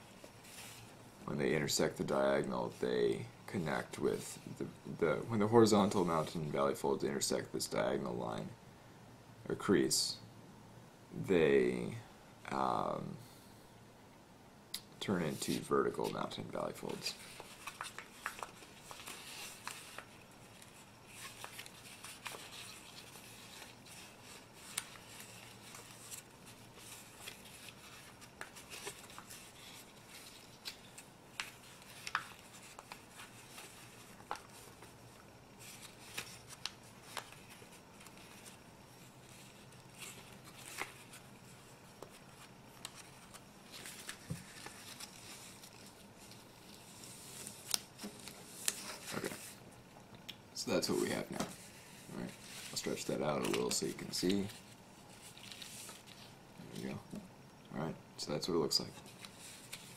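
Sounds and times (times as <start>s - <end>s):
paper crackling and rustling: 15.3s - 49.6s, 50.9s - 57.0s, 58.9s - 59.9s.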